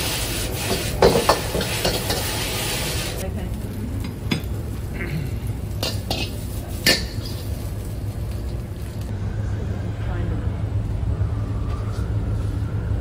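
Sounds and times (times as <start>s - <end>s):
metal ladle scraping a wok: 0.0s - 3.2s.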